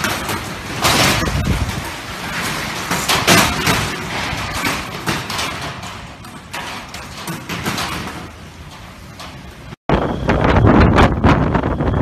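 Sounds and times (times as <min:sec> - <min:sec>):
shutter rattling and knocking: 0:00.0 - 0:09.8
strong wind gusting: 0:00.9 - 0:02.2, 0:09.9 - 0:12.0.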